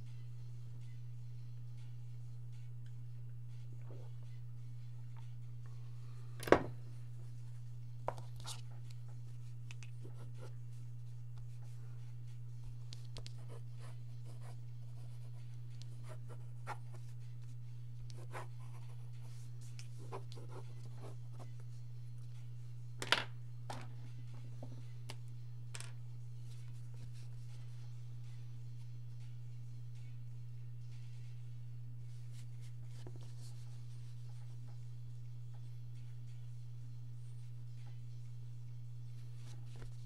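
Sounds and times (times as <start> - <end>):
steady low hum: 0.0 - 40.0
pencil scratching on paper: 13.3 - 17.2, 18.1 - 21.5.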